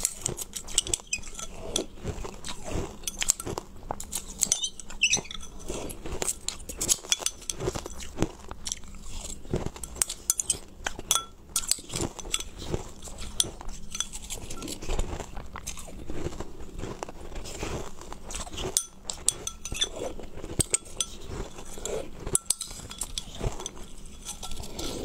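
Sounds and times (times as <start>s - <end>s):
spoon clinking on glass bowl: 0.0s - 1.9s, 3.0s - 5.6s, 6.9s - 8.1s, 9.8s - 14.8s, 18.6s - 25.0s
ice crunching being chewed: 0.0s - 25.0s.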